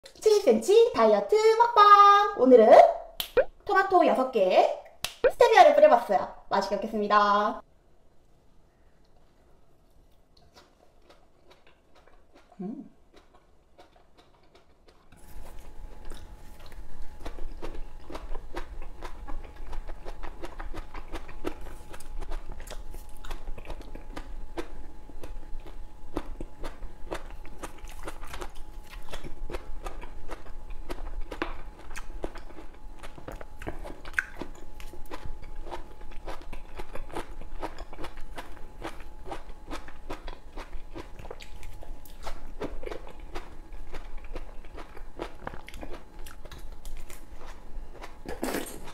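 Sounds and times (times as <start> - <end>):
chewing and biting tomato: 10.4 - 48.9.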